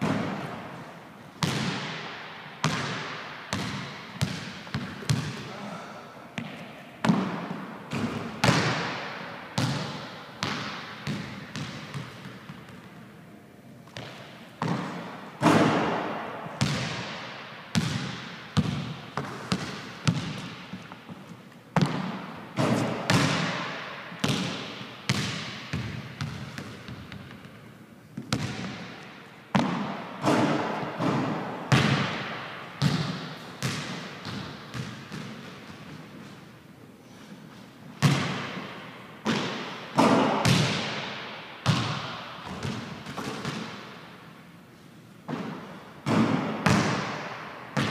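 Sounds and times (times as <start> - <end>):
basketball bouncing on hardwood floor: 1.4 - 2.0, 2.6 - 5.4, 6.4 - 12.9, 13.9 - 20.9, 21.8 - 27.5, 28.2 - 36.0, 38.0 - 38.6, 39.2 - 43.8, 45.3 - 47.9.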